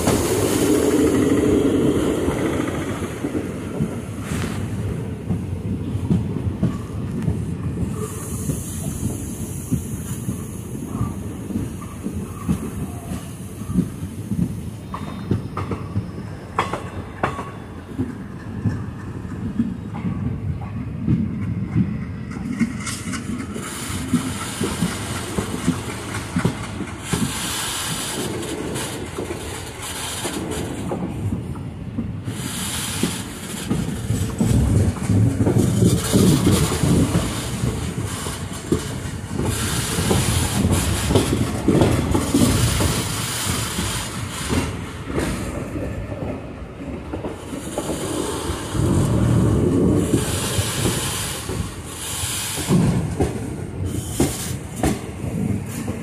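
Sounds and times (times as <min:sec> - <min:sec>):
rush of air: 0:00.0 - 0:16.5, 0:32.2 - 0:56.0
train wheels clattering on rails: 0:00.0 - 0:56.0.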